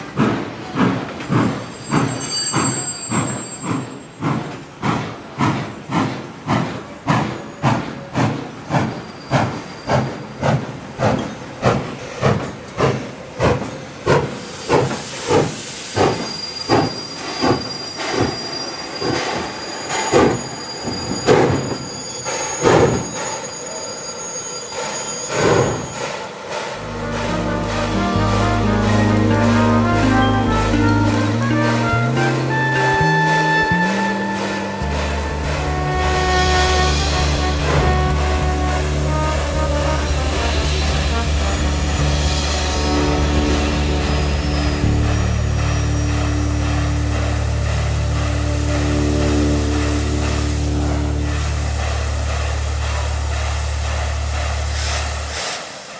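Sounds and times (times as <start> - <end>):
thin high squeal: 0.0 - 8.1, 15.6 - 26.2
steam hissing: 0.0 - 55.9
steam locomotive chuffing: 0.0 - 55.9.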